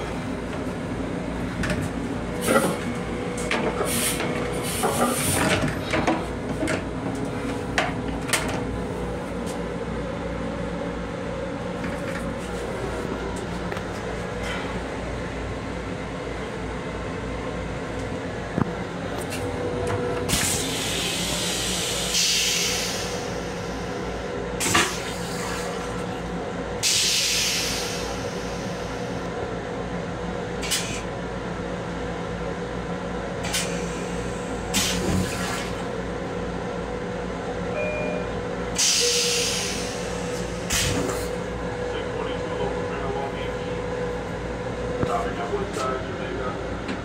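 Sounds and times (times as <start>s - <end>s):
train running noise: 0.0s - 47.0s.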